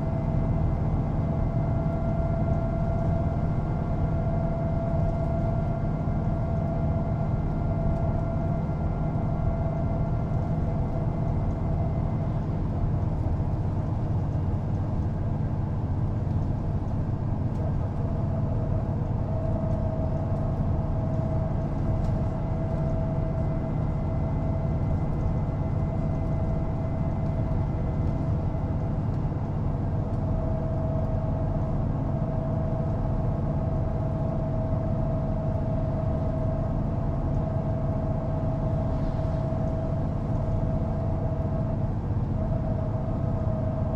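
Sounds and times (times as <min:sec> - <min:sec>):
bus engine low hum: 0:00.0 - 0:43.9.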